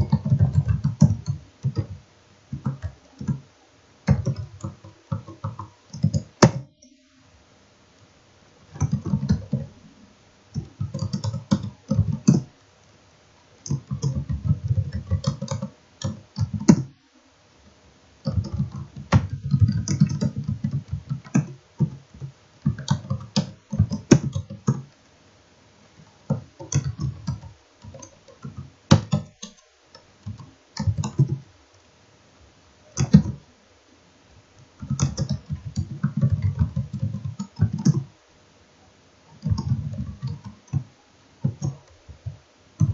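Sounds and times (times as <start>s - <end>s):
keyboard typing: 0.0s - 7.0s, 8.7s - 9.7s, 10.5s - 12.6s, 13.6s - 17.0s, 18.2s - 25.0s, 26.2s - 31.5s, 32.9s - 33.4s, 34.6s - 38.1s, 39.3s - 42.9s.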